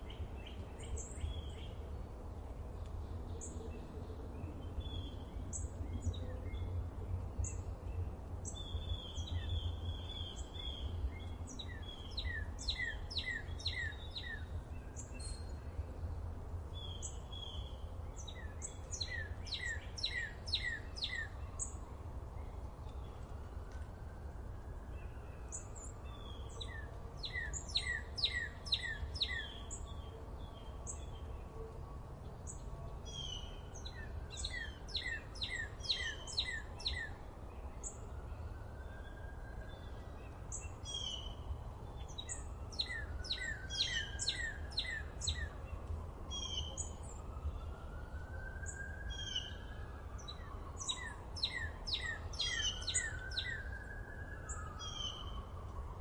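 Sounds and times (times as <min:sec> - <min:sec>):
small birds chirping: 0:07.4 - 0:15.6, 0:16.8 - 0:21.8, 0:25.0 - 0:30.0, 0:32.4 - 0:38.1, 0:39.7 - 0:47.3, 0:48.6 - 0:53.8.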